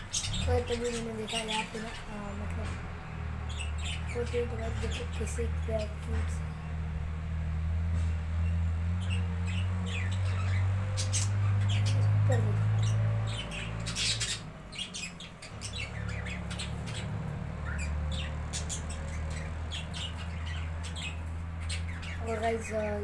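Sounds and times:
budgerigars chirping and squawking: 0.0 - 6.7, 8.4 - 23.0.

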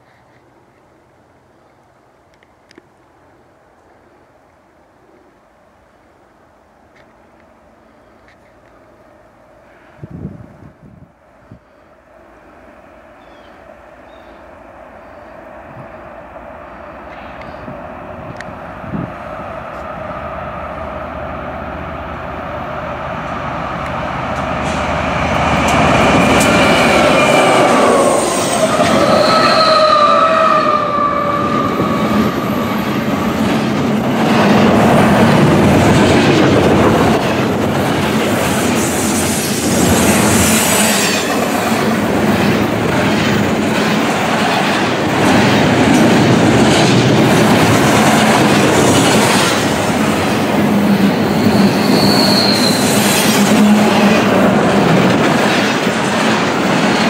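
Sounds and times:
train locomotives passing: 8.4 - 57.0
wheel flanges squealing: 26.3 - 32.9, 50.9 - 54.2
wheels clattering on rails: 39.7 - 52.0, 53.3 - 57.0.

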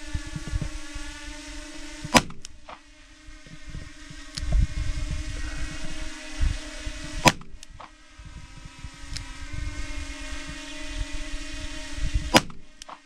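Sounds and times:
wind on microphone: 0.0 - 2.4, 3.2 - 12.8
drone humming: 0.0 - 13.0
gunshot crack: 2.1 - 2.4, 7.2 - 7.5.

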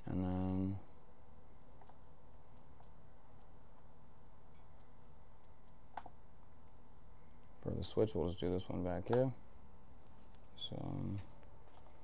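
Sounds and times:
faint steady hum: 0.0 - 12.0
sharp high ticks of transmitter keys: 0.2 - 0.8.

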